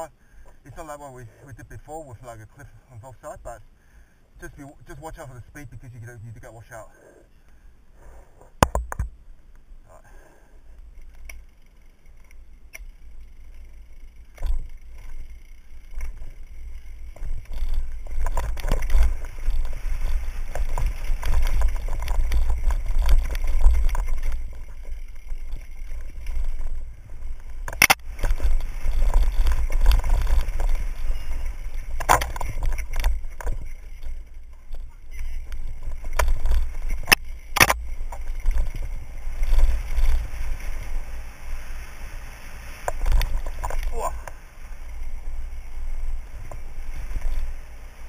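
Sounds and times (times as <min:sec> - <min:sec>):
bike rattling: 0:10.8 - 0:48.0
tyres rolling over dirt and stones: 0:13.0 - 0:41.8, 0:42.5 - 0:48.0.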